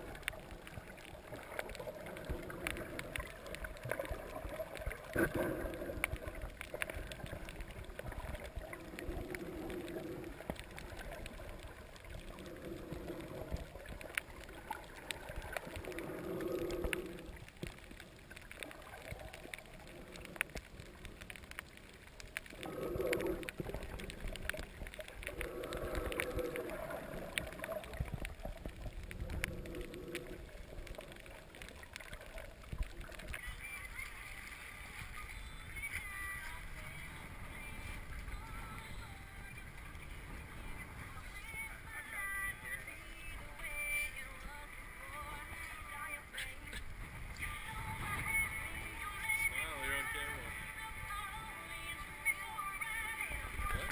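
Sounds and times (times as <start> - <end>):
crackle of small underwater clicks: 0.0 - 53.9
snorkeler breathing underwater: 5.1 - 6.4, 15.7 - 17.4, 22.6 - 24.6, 25.2 - 28.2.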